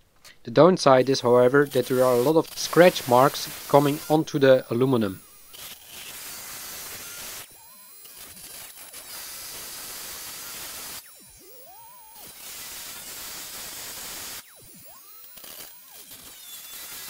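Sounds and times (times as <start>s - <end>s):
multi-tool blade rasping metal: 1.0s - 17.0s.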